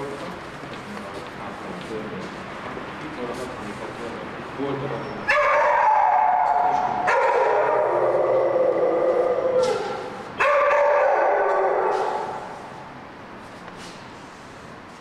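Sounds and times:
long howling cries: 5.3s - 12.6s.

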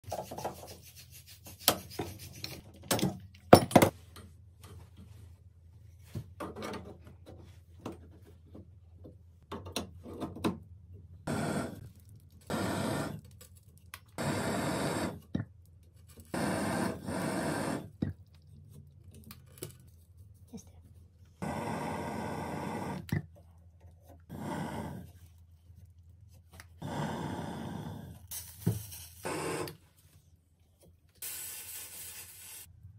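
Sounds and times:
torch flame hissing: 11.3s - 11.9s, 12.5s - 13.2s, 14.2s - 15.2s, 16.3s - 17.9s, 21.4s - 23.1s, 24.3s - 25.0s, 26.8s - 28.5s.

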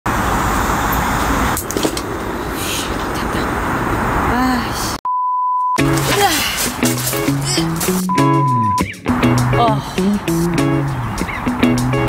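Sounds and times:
road traffic noise: 0.0s - 5.0s, 5.8s - 12.0s
steady beep tone: 5.1s - 5.8s, 8.1s - 8.9s.

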